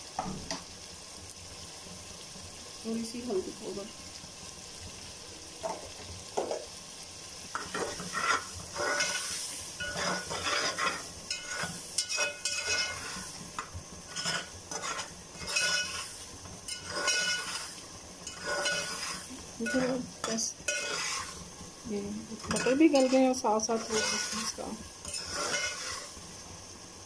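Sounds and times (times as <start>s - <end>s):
food sizzling in oil: 0.0s - 27.0s
spatula scraping a metal pot: 7.6s - 21.5s, 22.4s - 26.2s.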